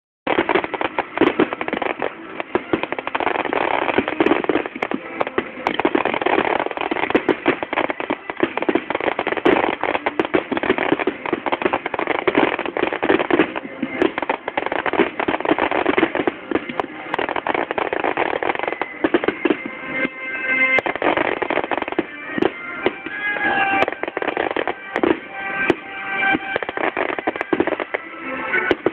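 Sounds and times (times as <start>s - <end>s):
fireworks bangs and crackles: 0.3s - 28.9s.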